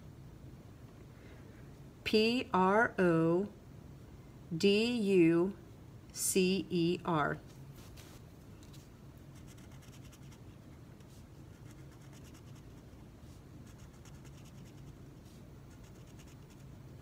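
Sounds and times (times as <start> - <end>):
low steady hum: 0.0 - 17.0
marker scratching across paper: 9.3 - 16.8.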